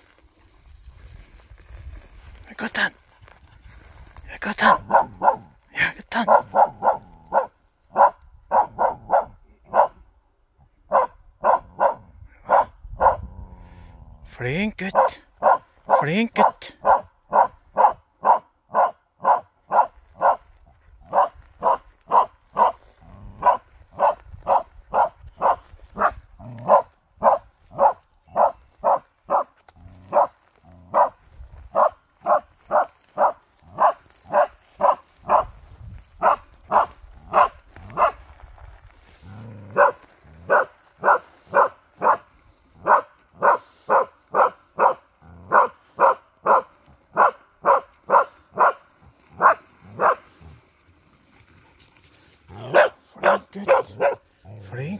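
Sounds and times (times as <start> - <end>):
dog barking: 4.7 - 5.5, 6.2 - 10.0, 10.9 - 13.3, 14.9 - 20.4, 21.1 - 22.8, 23.4 - 29.5, 30.1 - 30.3, 30.9 - 35.6, 36.2 - 38.2, 39.7 - 48.8, 49.4 - 50.2, 52.6 - 54.2.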